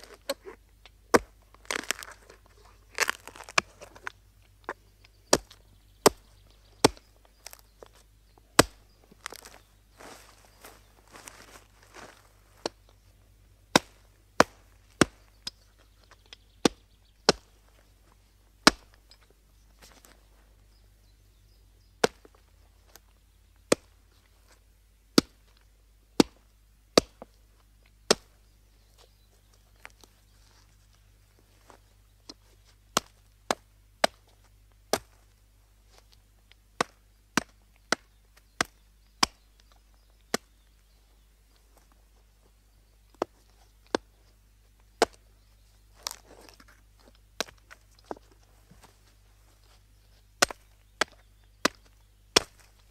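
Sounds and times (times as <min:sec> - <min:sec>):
axe chopping wood: 0:01.1 - 0:02.2, 0:03.0 - 0:04.1, 0:05.3 - 0:07.6, 0:08.6 - 0:09.5, 0:13.7 - 0:15.3, 0:16.6 - 0:17.6, 0:18.6 - 0:19.0, 0:22.0 - 0:22.4, 0:23.7 - 0:23.9, 0:25.2 - 0:25.4, 0:26.2 - 0:26.4, 0:27.0 - 0:27.3, 0:28.1 - 0:28.3, 0:33.0 - 0:34.3, 0:34.9 - 0:35.2, 0:36.8 - 0:39.4, 0:45.0 - 0:45.2, 0:50.4 - 0:52.9.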